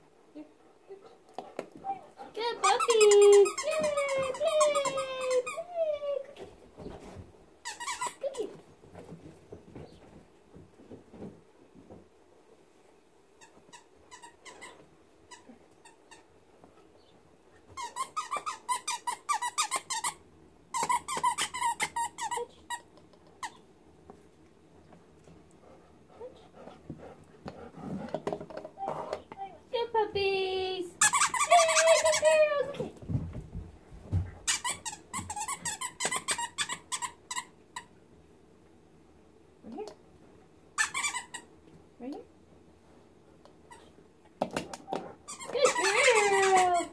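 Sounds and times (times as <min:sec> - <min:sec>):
squeaky dog toy squeaking: 0:02.6 - 0:05.7, 0:07.6 - 0:08.2, 0:13.4 - 0:15.5, 0:17.8 - 0:23.6, 0:31.0 - 0:32.4, 0:34.5 - 0:37.5, 0:40.8 - 0:41.5, 0:44.9 - 0:46.9.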